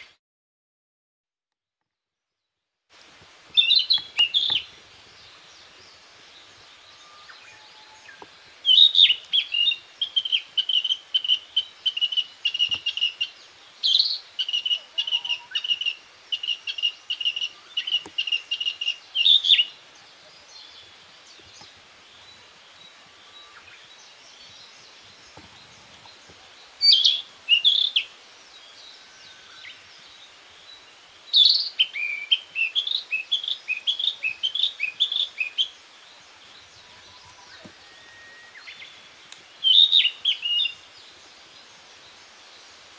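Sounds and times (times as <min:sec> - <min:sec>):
flycatcher singing whistled notes: 0:03.5 - 0:04.7, 0:06.8 - 0:19.8, 0:26.8 - 0:28.1, 0:31.3 - 0:35.8, 0:36.6 - 0:40.9.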